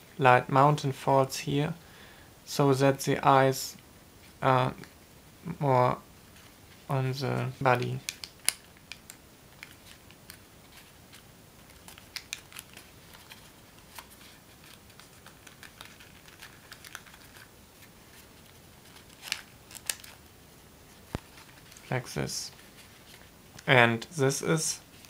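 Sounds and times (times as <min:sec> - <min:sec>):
paper crinkling and crackling: 0:06.4 - 0:20.3, 0:20.9 - 0:23.3.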